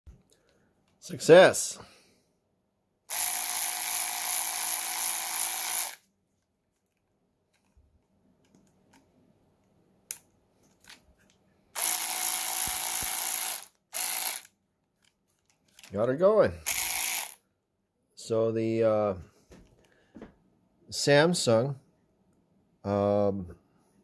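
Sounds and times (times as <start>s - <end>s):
electric ratchet whining: 3.1s - 6.0s, 11.8s - 14.5s, 16.6s - 17.4s.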